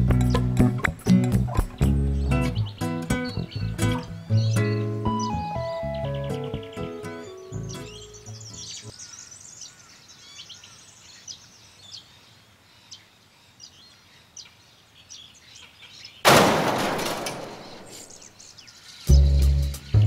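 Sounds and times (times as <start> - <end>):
small birds chirping: 0.0 - 16.3, 17.2 - 20.0.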